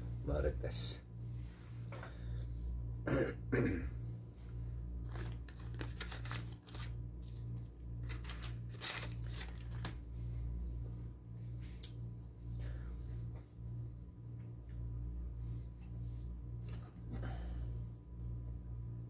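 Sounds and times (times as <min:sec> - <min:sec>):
air conditioner hum: 0:00.0 - 0:19.0
man coughing: 0:03.0 - 0:04.0
foil packet crackling: 0:05.0 - 0:10.1.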